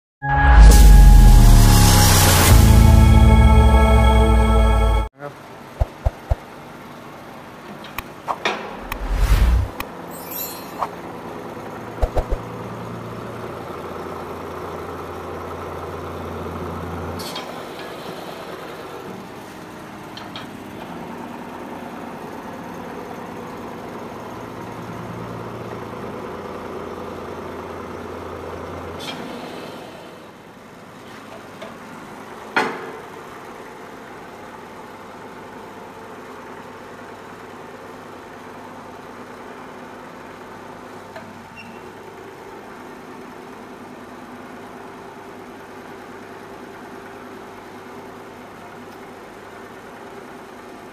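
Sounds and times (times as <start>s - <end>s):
deeper hum: 8.8s - 9.8s.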